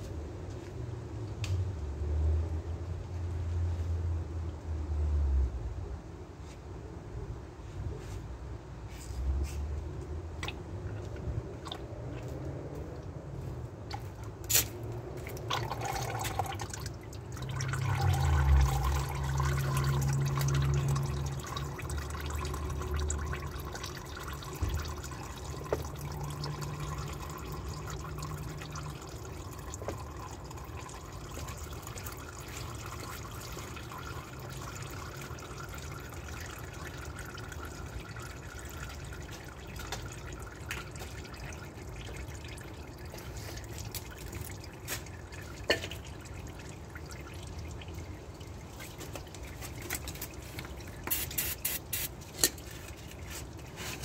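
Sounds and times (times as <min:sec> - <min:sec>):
oil trickling into drain pan: 0:13.9 - 0:54.0.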